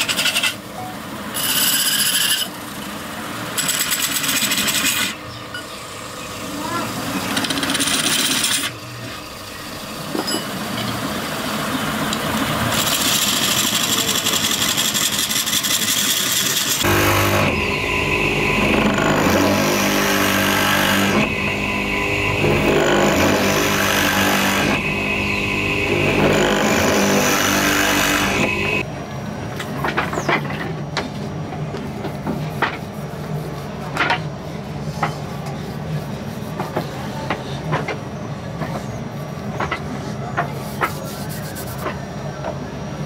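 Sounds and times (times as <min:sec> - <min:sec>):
wood lathe turning: 0:00.0 - 0:00.6, 0:01.3 - 0:02.8, 0:06.9 - 0:08.8, 0:10.6 - 0:28.8
drill boring into wood: 0:07.3 - 0:08.7, 0:12.7 - 0:17.6, 0:18.6 - 0:21.4, 0:22.4 - 0:24.8, 0:25.9 - 0:28.5
chisel cutting wood shavings: 0:07.3 - 0:08.8, 0:12.1 - 0:17.6.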